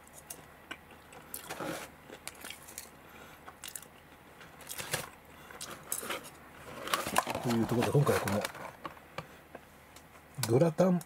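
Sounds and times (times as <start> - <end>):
paper rustling: 5.7 - 8.8.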